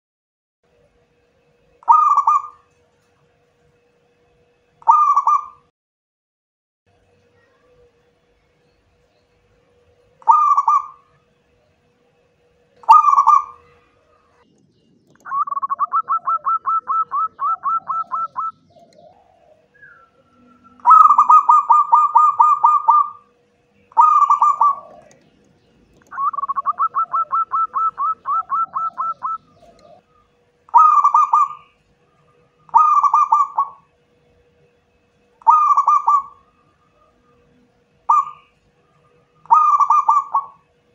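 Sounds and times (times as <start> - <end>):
dove cooing: 1.8 - 2.7, 4.8 - 5.6, 10.2 - 11.2, 12.8 - 14.4, 15.2 - 33.9, 35.4 - 40.7.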